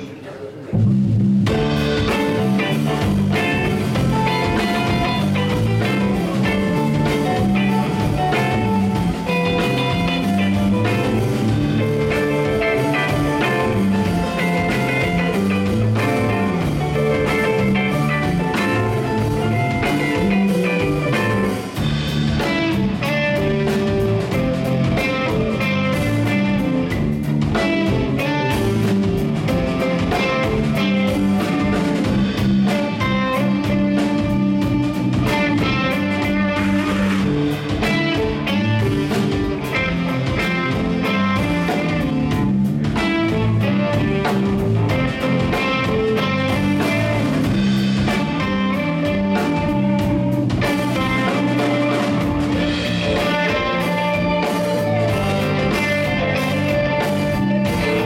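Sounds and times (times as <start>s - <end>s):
bass guitar: 0.0s - 58.0s
drum kit: 0.0s - 58.0s
electric guitars: 0.0s - 58.0s.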